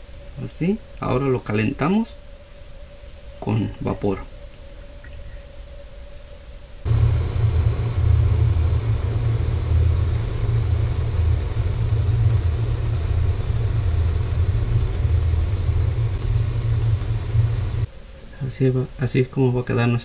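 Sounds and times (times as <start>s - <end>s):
steam hissing from kettle: 6.8s - 17.9s
low rumble of boiling kettle: 6.8s - 18.6s.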